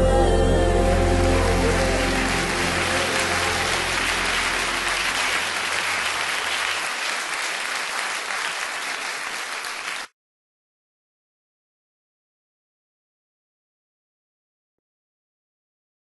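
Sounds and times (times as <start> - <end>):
audience applause: 0.8 - 10.1.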